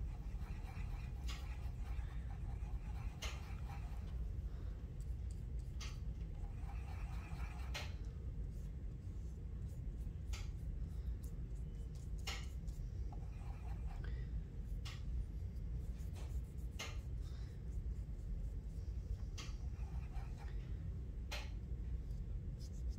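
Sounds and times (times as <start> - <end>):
brush strokes on paper: 0.0 - 4.2
paintbrush scrubbing paint: 0.0 - 4.2, 4.8 - 20.6, 22.1 - 22.9
steady low hum: 0.0 - 22.9.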